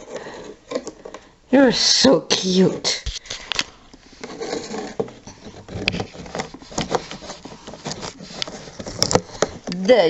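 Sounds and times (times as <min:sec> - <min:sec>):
plastic cup handled: 0:03.1 - 0:09.9
shredded paper rustling: 0:04.2 - 0:09.6.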